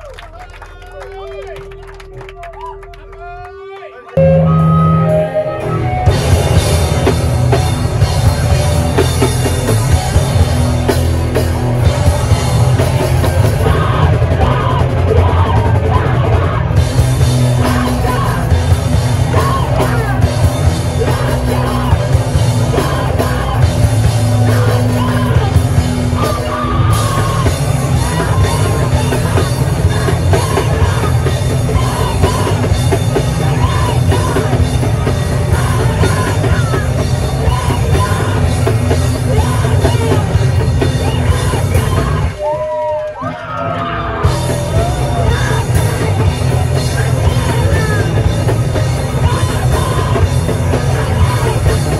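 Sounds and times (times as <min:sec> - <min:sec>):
drums: 0:04.2 - 0:51.9
guitars: 0:04.2 - 0:51.9
rock band playing live: 0:04.2 - 0:51.9
yelled vocals: 0:04.5 - 0:51.9.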